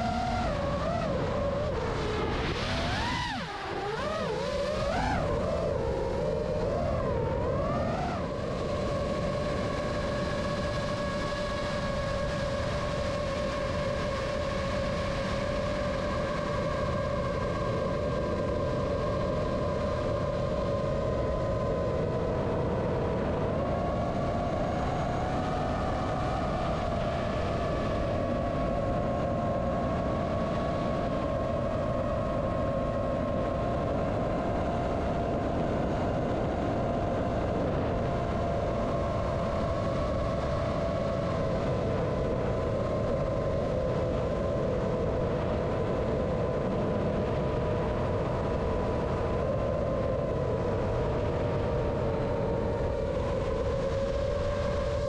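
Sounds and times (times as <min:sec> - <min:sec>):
drone motors whining: 0:00.0 - 0:13.4
wind rush: 0:00.0 - 0:55.0.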